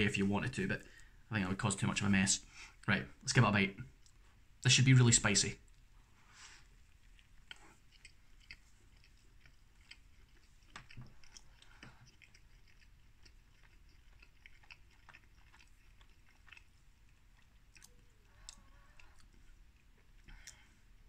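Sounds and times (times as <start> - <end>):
person chewing: 5.6 - 21.0.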